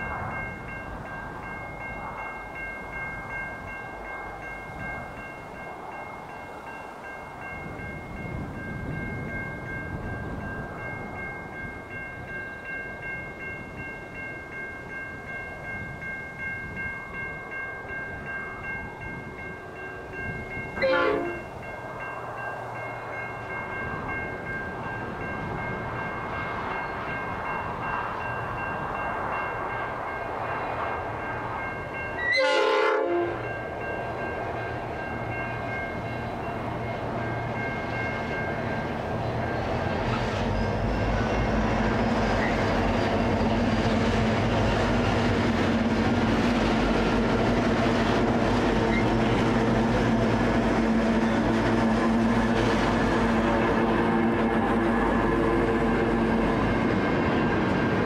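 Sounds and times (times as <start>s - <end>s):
freight train running: 0.0s - 58.0s
locomotive horn: 20.8s - 21.5s, 32.2s - 33.4s.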